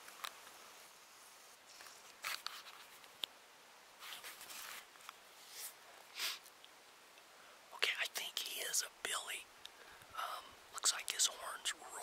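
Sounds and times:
clothing and gear rustling: 4.0s - 5.8s.

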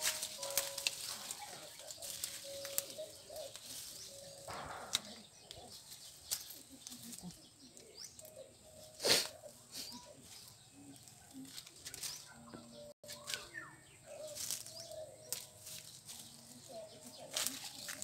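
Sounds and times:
bamboo tubes clicking and knocking: 0.0s - 8.5s, 14.4s - 16.6s
dry leaves and twigs rustling: 0.0s - 18.0s.

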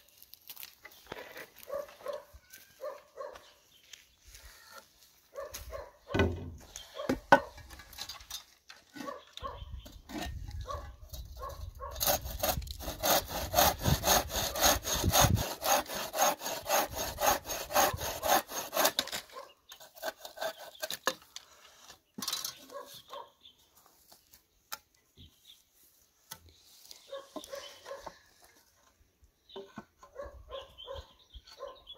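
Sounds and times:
frame saw cutting wood: 11.8s - 21.2s.

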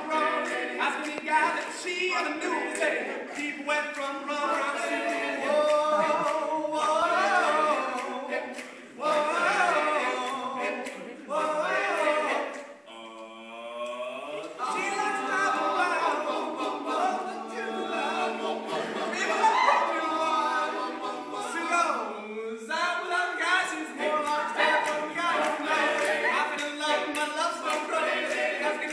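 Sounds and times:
gliding vocal sound: 0.0s - 28.9s
male a cappella group singing: 0.0s - 28.9s.

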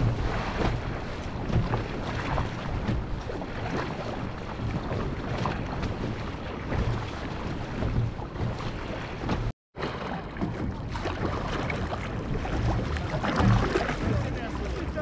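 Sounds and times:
wind buffeting microphone: 0.0s - 8.6s
paddle splashes: 0.0s - 15.0s
sea water splashing: 0.0s - 15.0s.

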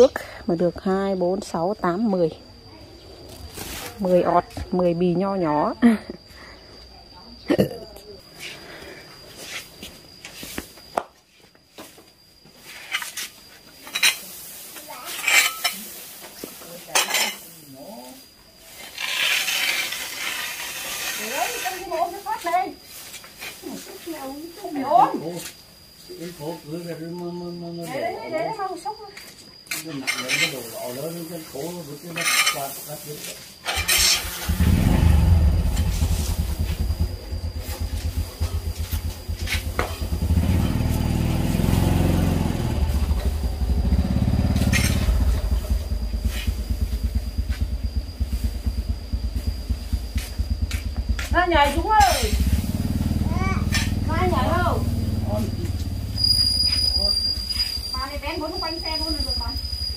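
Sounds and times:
rake scraping: 3.3s - 4.9s, 9.3s - 10.9s, 11.7s - 25.6s, 29.6s - 59.0s
dry grass rustling: 12.6s - 17.7s, 35.6s - 41.4s
short scrapes and clicks: 18.8s - 21.8s
engine running: 33.7s - 56.3s
faint steady high tone: 56.4s - 59.9s.

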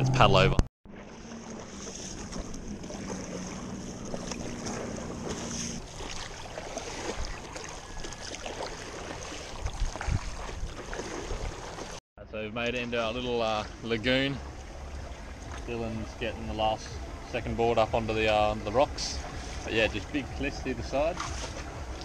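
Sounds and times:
distant motor hum: 0.0s - 9.6s, 13.6s - 22.0s
paddle splashes: 0.9s - 12.0s, 12.8s - 22.0s
water lapping against board: 0.9s - 12.0s, 12.8s - 22.0s
wind on microphone: 9.4s - 11.6s.

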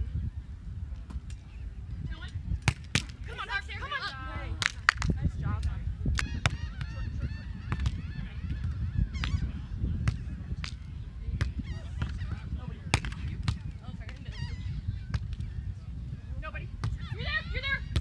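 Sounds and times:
wind on microphone: 0.0s - 18.0s
hands slapping volleyball: 2.6s - 3.2s, 4.6s - 6.6s, 10.0s - 10.8s, 12.9s - 14.2s.

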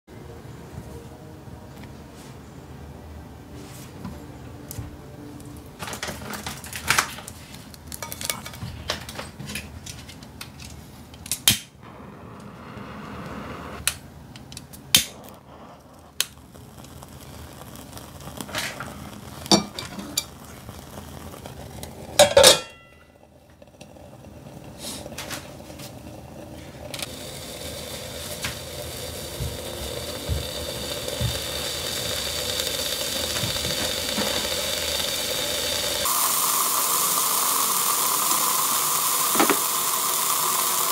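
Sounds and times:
beef sizzling on grill: 7.9s - 8.6s, 15.0s - 40.9s.

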